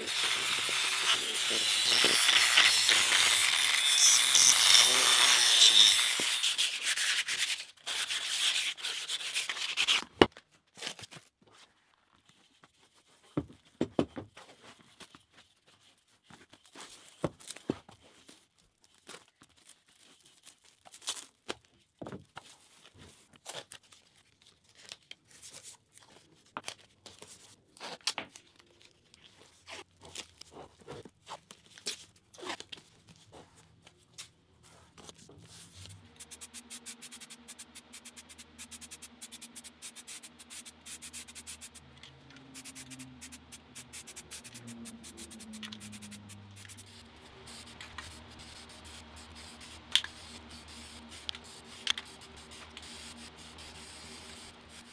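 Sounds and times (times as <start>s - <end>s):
power tool grinding metal rim: 0.0s - 6.6s
plastic wrap and tape rustling: 14.3s - 54.9s.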